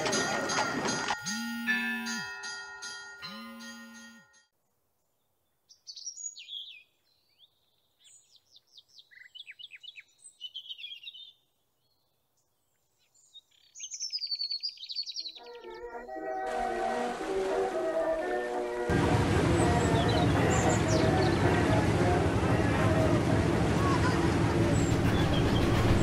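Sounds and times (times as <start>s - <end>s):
songbirds chirping and whistling: 5.5s - 16.5s, 19.5s - 21.9s.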